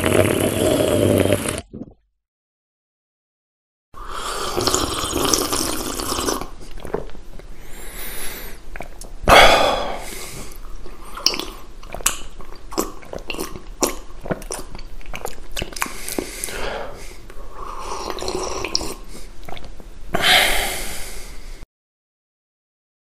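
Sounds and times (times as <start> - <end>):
person drinking and swallowing: 0.0 - 2.0, 4.1 - 7.5, 8.6 - 16.8, 17.6 - 20.3
wet mouth clicks: 8.7 - 9.2, 10.5 - 16.6, 18.0 - 19.8.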